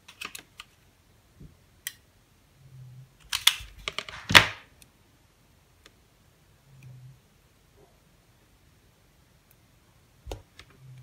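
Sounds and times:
plastic parts clicking and clacking: 0:00.0 - 0:00.8, 0:03.2 - 0:04.6.

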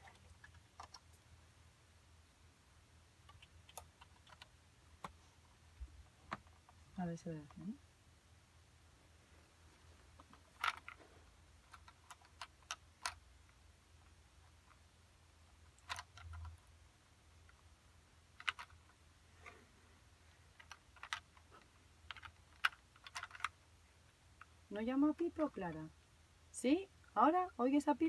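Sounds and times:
faint low hum: 0:00.0 - 0:28.0
plastic toy pieces clicking: 0:15.7 - 0:16.5, 0:18.4 - 0:18.8, 0:20.6 - 0:21.4, 0:22.1 - 0:23.5.

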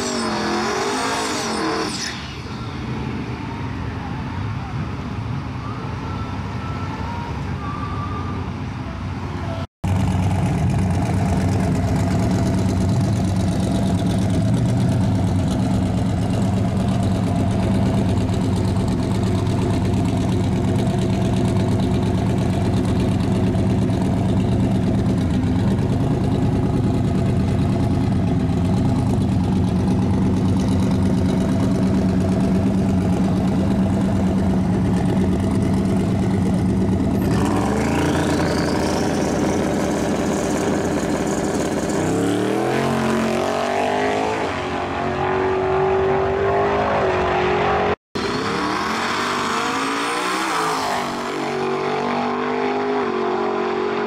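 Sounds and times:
truck engine running: 0:09.8 - 0:42.5.

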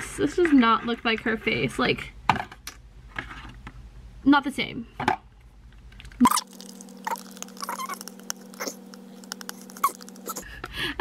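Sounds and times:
steady low hum: 0:02.0 - 0:11.0
gel stirred with spatula: 0:06.2 - 0:10.4.

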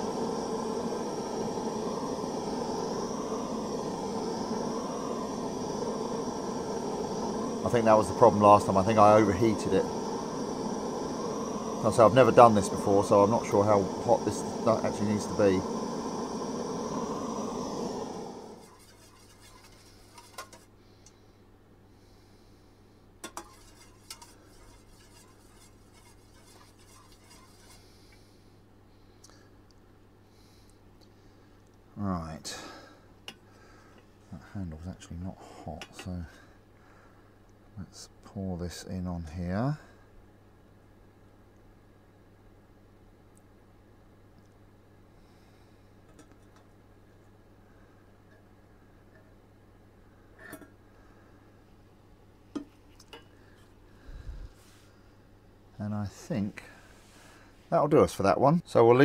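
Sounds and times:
electric fan running: 0:00.0 - 0:21.3, 0:23.2 - 0:28.6, 0:44.7 - 0:57.6
spoon stirring wax in metal bowl: 0:18.6 - 0:20.7, 0:23.2 - 0:27.9.

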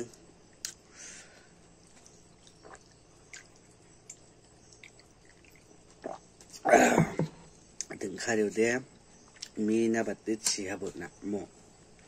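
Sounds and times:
man gulping from a jug: 0:01.9 - 0:04.2, 0:04.8 - 0:07.4.

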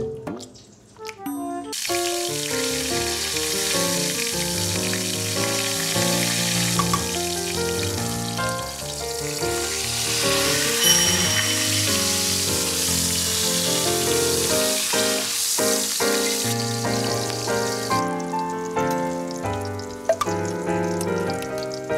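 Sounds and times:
quick melodic background music: 0:01.0 - 0:14.8
roe sizzling in oil: 0:01.7 - 0:21.9.

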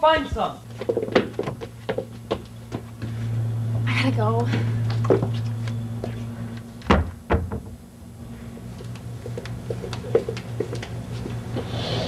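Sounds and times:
steady low hum: 0:00.2 - 0:12.0.

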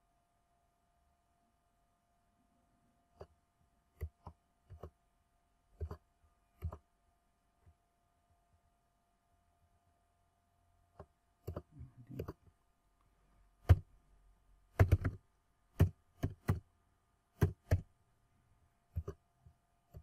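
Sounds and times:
faint steady hum: 0:00.0 - 0:20.0
keyboard and mouse clicks: 0:04.0 - 0:05.0, 0:05.8 - 0:06.0, 0:06.6 - 0:06.8, 0:11.0 - 0:12.5, 0:13.6 - 0:13.9, 0:14.7 - 0:16.7, 0:17.4 - 0:17.9, 0:18.9 - 0:19.2.

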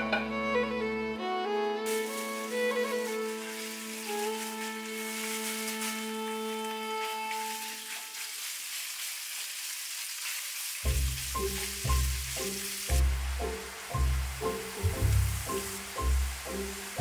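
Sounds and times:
meat sizzling in hot oil: 0:01.9 - 0:17.0.

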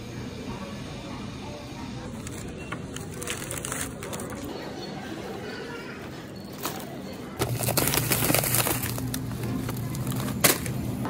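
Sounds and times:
freezer hum: 0:00.0 - 0:04.9, 0:06.5 - 0:11.0
plastic bag crackling: 0:02.1 - 0:04.5, 0:07.4 - 0:11.0
plastic packaging crinkling: 0:02.1 - 0:04.5, 0:07.4 - 0:11.0.

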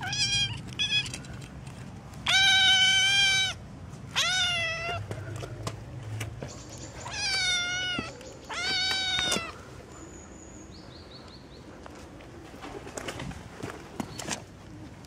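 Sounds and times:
kitten meowing: 0:00.0 - 0:01.2, 0:02.3 - 0:05.0, 0:07.0 - 0:09.6.

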